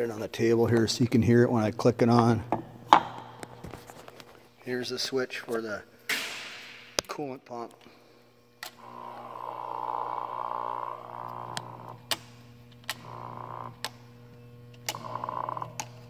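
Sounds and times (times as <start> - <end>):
steady machine hum: 0.0 - 16.0
coolant pump whine: 8.0 - 16.0.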